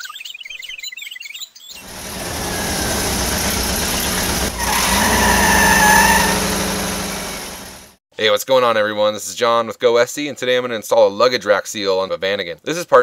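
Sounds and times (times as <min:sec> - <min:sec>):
birds chirping: 0:00.0 - 0:07.5
vehicle engine rumble and whine: 0:01.8 - 0:08.0.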